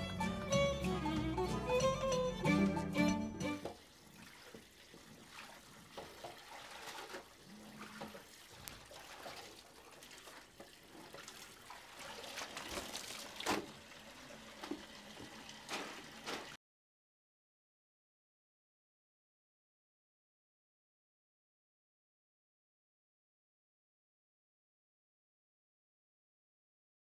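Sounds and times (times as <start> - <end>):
water splashing in washbasin: 3.5 - 16.6.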